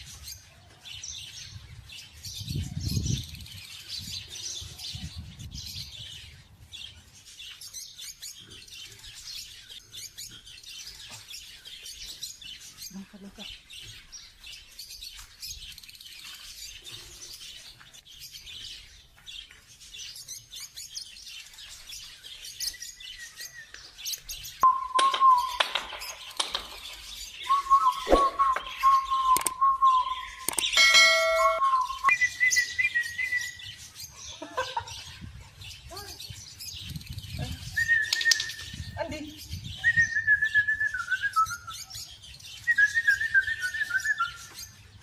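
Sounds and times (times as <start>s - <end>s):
lovebird chirping: 22.5s - 34.9s
long whistled notes: 24.6s - 25.9s, 27.4s - 33.6s.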